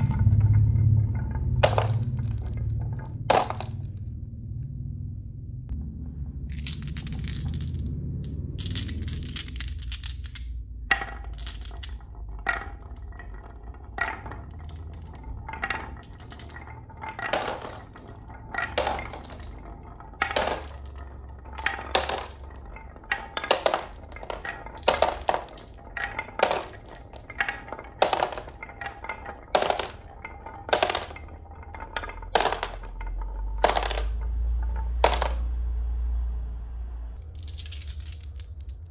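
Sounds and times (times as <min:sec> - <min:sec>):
marbles clattering on wooden track: 0:00.0 - 0:04.2, 0:06.3 - 0:35.6, 0:37.2 - 0:38.9.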